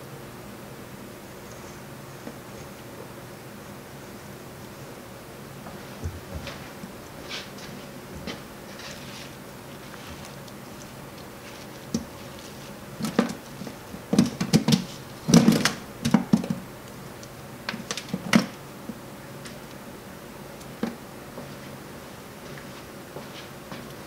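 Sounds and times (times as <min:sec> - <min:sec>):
knocks and clicks of scooping pulp: 0:08.2 - 0:16.7.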